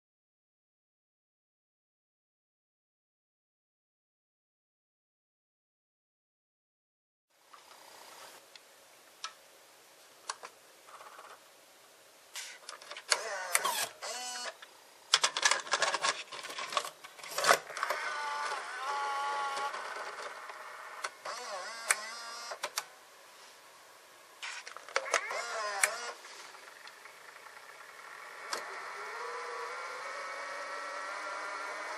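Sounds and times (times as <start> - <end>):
small motor whirring: 13.1 - 14.6, 17.3 - 22.6, 24.4 - 31.9
cassette handling clatter: 15.2 - 18.0.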